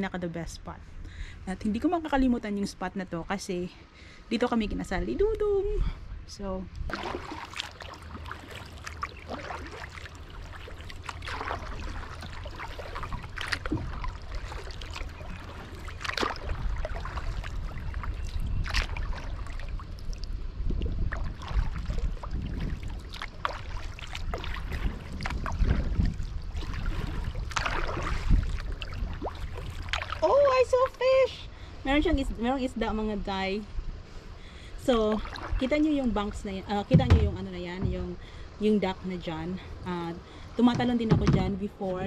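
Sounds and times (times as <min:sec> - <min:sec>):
paddle splashing in water: 0:06.9 - 0:30.9, 0:35.1 - 0:38.4.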